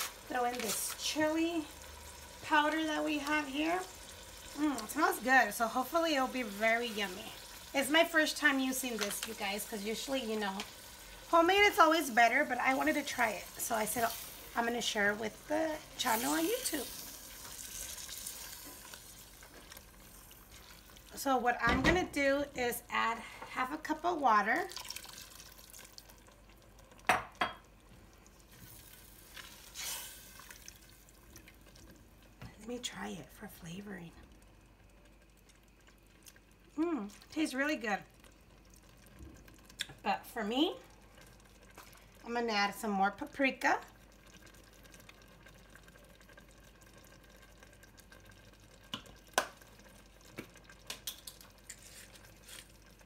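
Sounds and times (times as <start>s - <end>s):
spatula stirring thick beans: 0.0s - 1.2s, 51.6s - 52.8s
light clicks and taps at pot: 48.8s - 49.7s, 50.3s - 51.8s.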